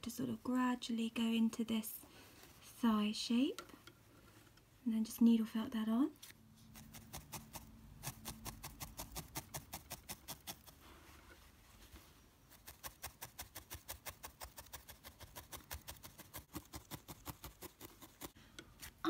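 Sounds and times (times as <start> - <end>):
felting needle tapping: 6.8 - 10.7.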